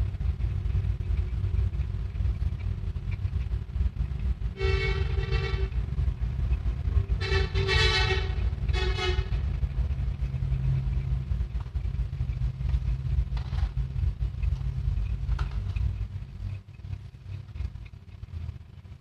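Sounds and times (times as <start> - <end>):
road traffic rumbling: 0.0 - 19.0
vehicle horn tooting: 4.5 - 5.8, 7.1 - 9.5.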